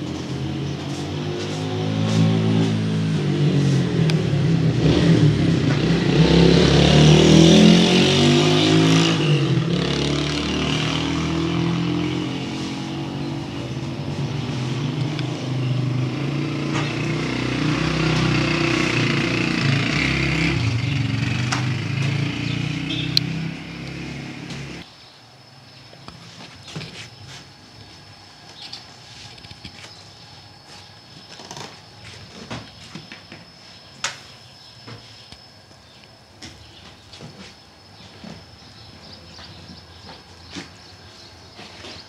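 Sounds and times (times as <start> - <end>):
engine running loudly: 0.0 - 24.8.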